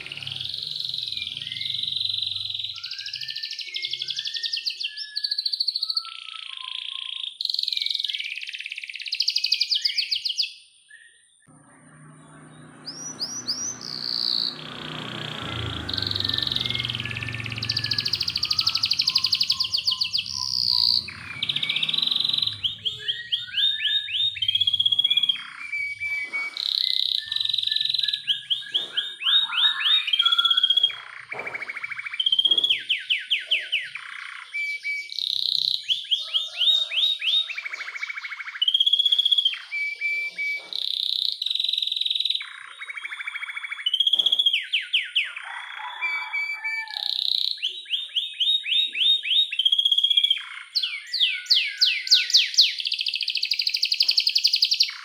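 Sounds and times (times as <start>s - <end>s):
canary singing trills: 0.0s - 55.0s
low rumble: 11.5s - 23.1s.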